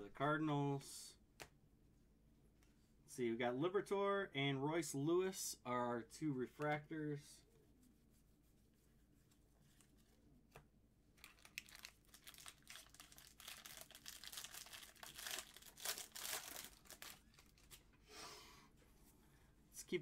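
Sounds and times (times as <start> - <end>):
wrapper tearing and crinkling: 11.2 - 17.8.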